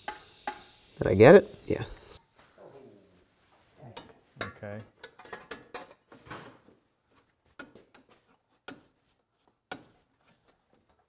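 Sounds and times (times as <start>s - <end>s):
faint clicks and metal taps: 4.0s - 8.9s.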